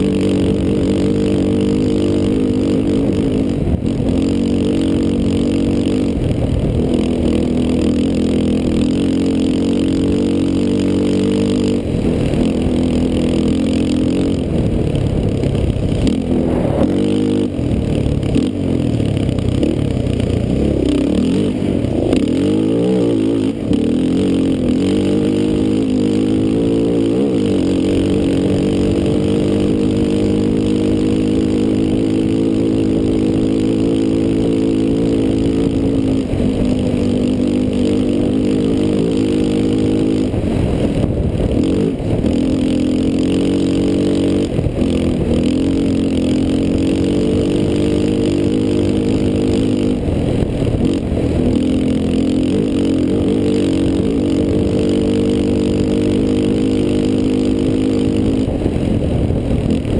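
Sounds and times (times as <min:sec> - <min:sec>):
quad engine revving hard: 0:00.0 - 0:59.9
wind rush: 0:14.4 - 0:18.4, 0:40.3 - 0:42.4, 0:58.4 - 0:59.9.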